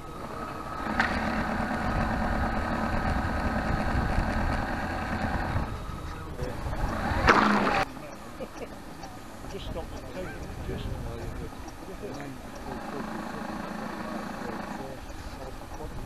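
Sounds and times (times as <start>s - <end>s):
model boat motor whining: 0.0s - 16.0s
motor starting click: 0.1s - 7.8s.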